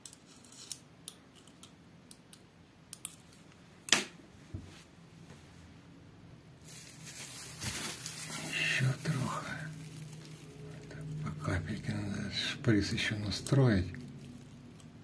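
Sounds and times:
faint hiss: 6.6 - 12.2.

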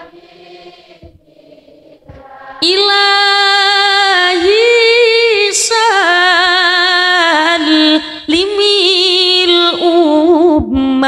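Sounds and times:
woman singing through microphone: 2.5 - 11.0.

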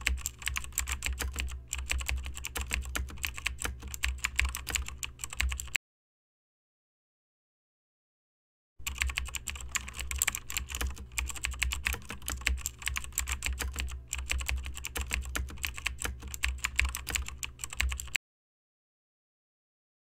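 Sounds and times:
fast keyboard typing: 0.0 - 5.8, 8.8 - 18.2
low steady hum: 8.8 - 18.2.

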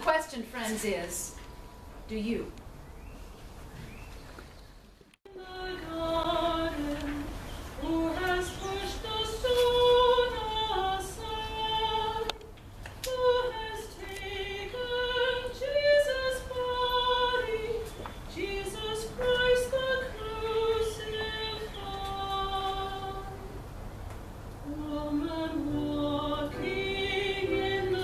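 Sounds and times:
woman singing a hymn: 5.3 - 23.6, 24.6 - 28.0.

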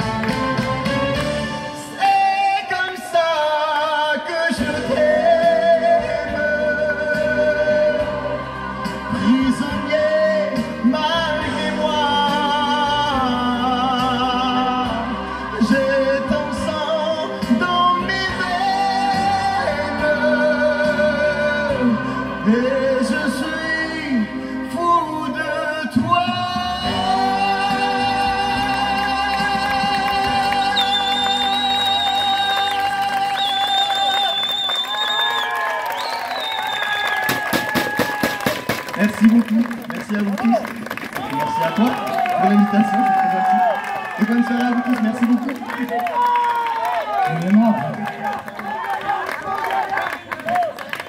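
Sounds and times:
backing track music: 0.0 - 35.2
man singing into a microphone: 1.8 - 34.3.

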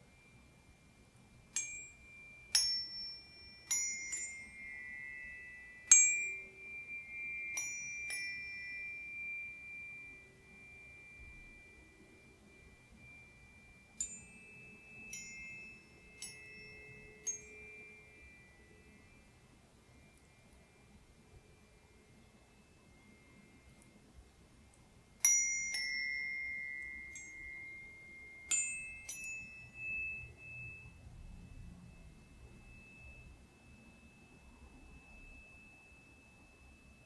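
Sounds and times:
tuning forks clinking and ringing: 0.0 - 37.0.

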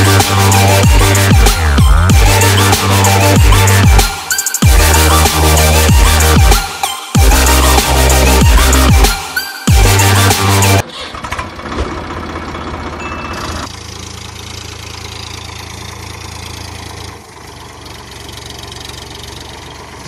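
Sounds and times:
toy tractor humming: 12.9 - 20.0.

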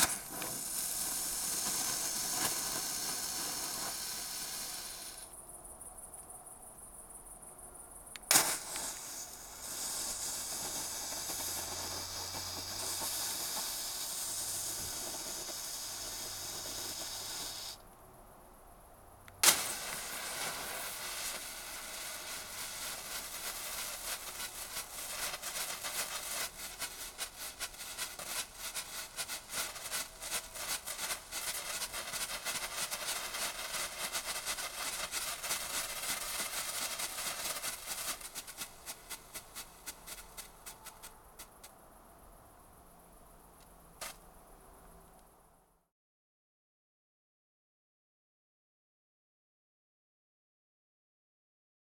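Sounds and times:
firework pops: 0.0 - 5.4, 8.1 - 17.8, 19.3 - 41.8, 43.6 - 44.3
rapid firework crackling: 0.0 - 5.4, 8.2 - 17.8, 19.4 - 41.7
hiss of burning flare: 0.0 - 17.8, 19.3 - 41.8.

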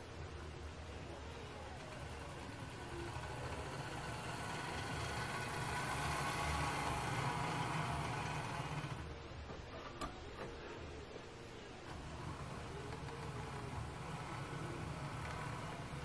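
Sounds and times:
wheels rolling on rails: 0.0 - 11.0, 11.7 - 16.0
model train motor whirring: 1.1 - 9.2, 11.9 - 16.0.

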